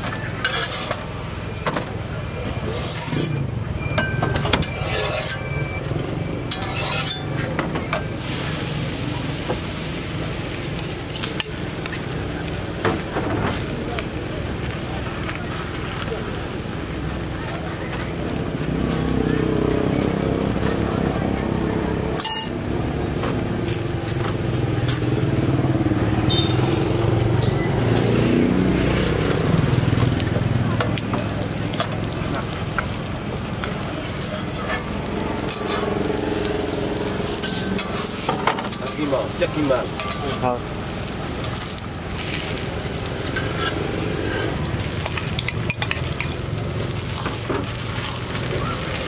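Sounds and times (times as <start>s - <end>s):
dough sizzling on griddle: 0.0s - 49.0s
vehicle engine humming: 0.0s - 49.0s
utensils scraping metal griddle: 0.4s - 1.1s, 2.6s - 3.4s, 4.6s - 5.6s, 6.5s - 7.5s, 33.6s - 46.4s.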